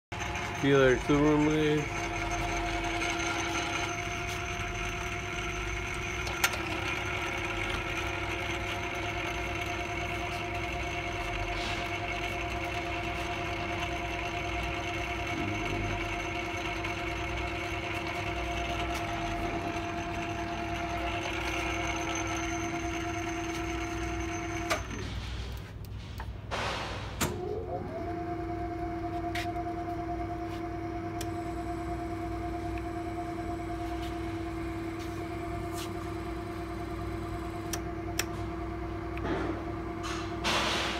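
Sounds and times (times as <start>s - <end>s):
lathe humming and whining: 0.1s - 25.6s, 27.3s - 40.9s.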